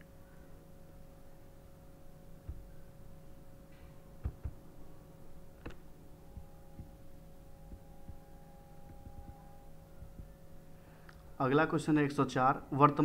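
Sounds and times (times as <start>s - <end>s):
low electrical hum: 0.0s - 13.0s
faint dull knocks: 3.7s - 4.6s.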